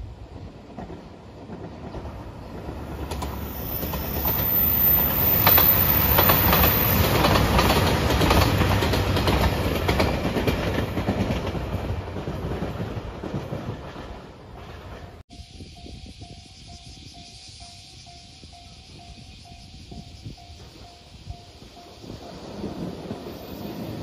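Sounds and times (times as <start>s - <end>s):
diesel train passing: 0.0s - 24.0s.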